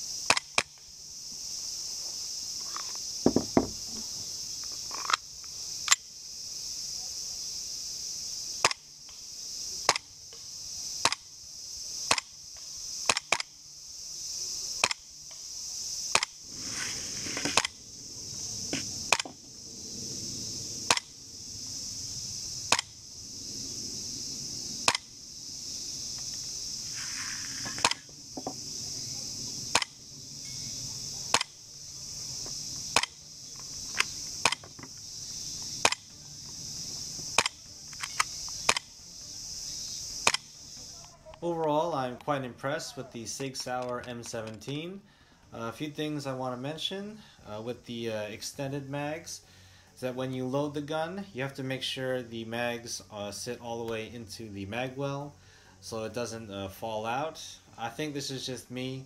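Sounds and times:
insects buzzing: 0:00.0 - 0:59.0
pistol slide cycling: 0:16.1 - 0:17.8, 0:20.9 - 0:21.1, 0:31.3 - 0:31.6, 0:37.4 - 0:38.9.

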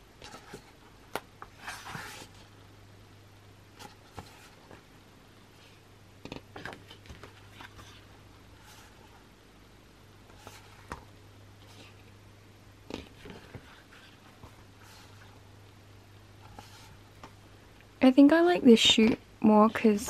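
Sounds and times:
low steady hum: 0:00.0 - 0:20.0
pages turning swishes: 0:01.5 - 0:02.5.

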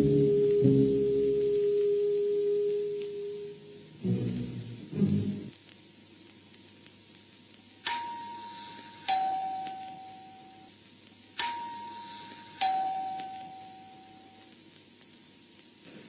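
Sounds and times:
two-tone ding-dong chime: 0:07.9 - 0:10.7, 0:11.4 - 0:14.4.

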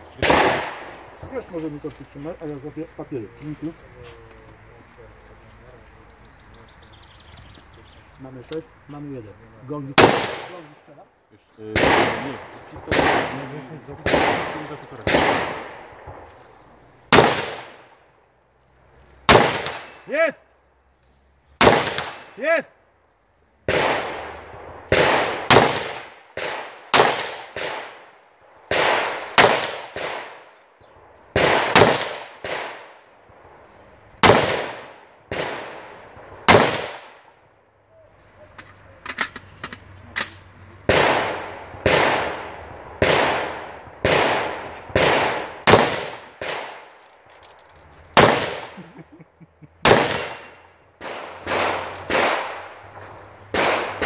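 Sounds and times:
gunshots with echo: 0:00.2 - 0:01.7, 0:09.9 - 0:10.7, 0:11.6 - 0:16.2, 0:17.1 - 0:17.9, 0:19.3 - 0:20.3, 0:21.6 - 0:22.6, 0:23.7 - 0:28.1, 0:28.7 - 0:30.6, 0:31.3 - 0:33.0, 0:34.2 - 0:37.3, 0:40.9 - 0:46.8, 0:48.2 - 0:49.2, 0:49.8 - 0:54.0.

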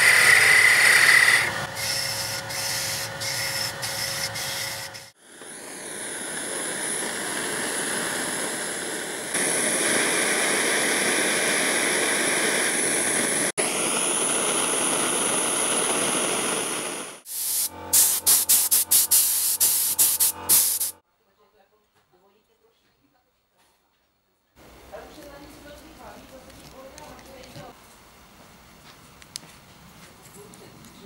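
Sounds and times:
chisel on turning wood lathe: 0:00.0 - 0:05.2
gas torch hissing: 0:00.0 - 0:21.0.

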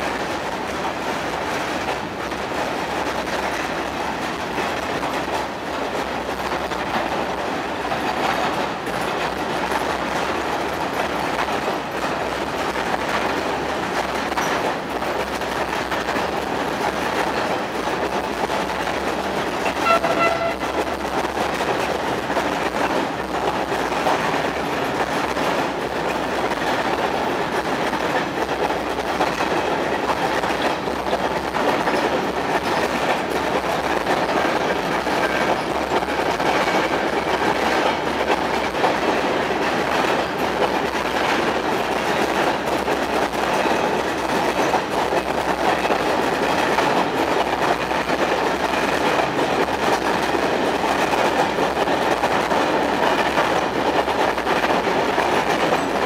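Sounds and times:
freight train wheels rumbling: 0:00.0 - 0:56.0
brief pitched tone: 0:19.8 - 0:20.7.

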